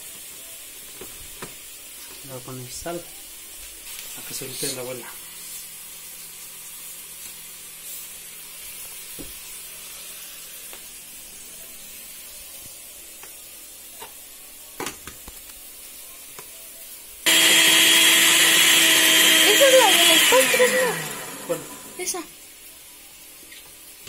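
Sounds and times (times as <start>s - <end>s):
food sizzling in a pot: 0.0s - 24.0s.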